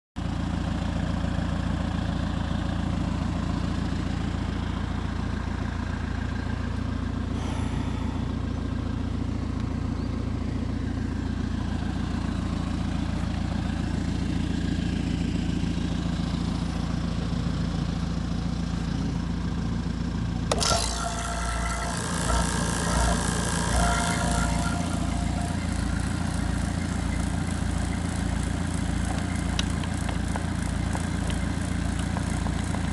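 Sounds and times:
excavator diesel engine idling: 0:00.2 - 0:32.9
bright mechanical sound: 0:20.5 - 0:27.4.

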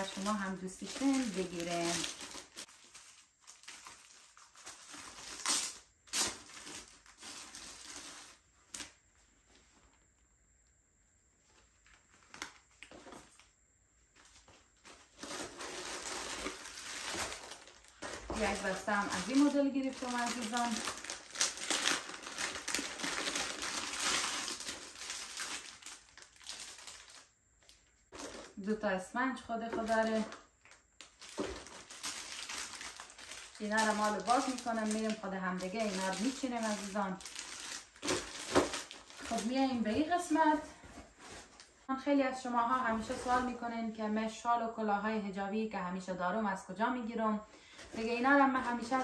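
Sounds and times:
packaging rustling and crinkling: 0:00.0 - 0:10.0, 0:11.4 - 0:13.5, 0:14.1 - 0:28.7, 0:29.6 - 0:41.9.

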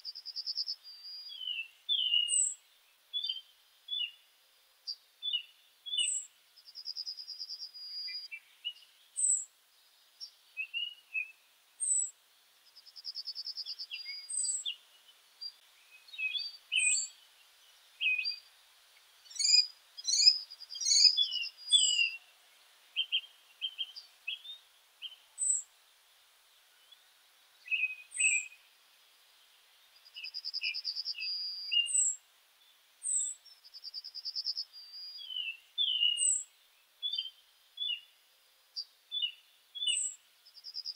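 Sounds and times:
small birds chirping: 0:00.0 - 0:40.9
buzzy bird trill: 0:19.3 - 0:22.2.

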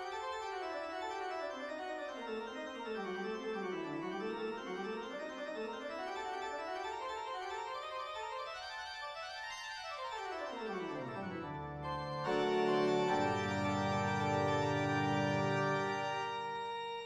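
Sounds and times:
background music: 0:10.6 - 0:17.0.

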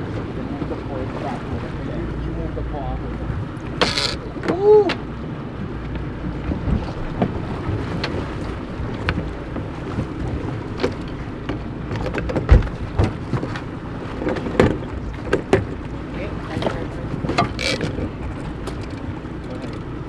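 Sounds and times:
boat engine low rumble: 0:00.0 - 0:20.0
wind on microphone: 0:04.2 - 0:10.8.

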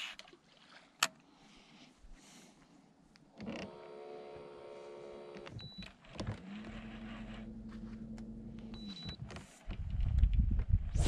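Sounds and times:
electric motor whining: 0:06.2 - 0:08.8.

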